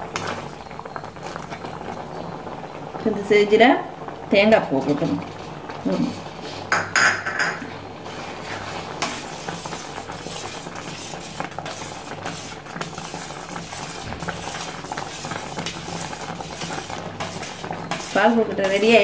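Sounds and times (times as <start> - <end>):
metal spatula scraping a pan: 6.1 - 19.0.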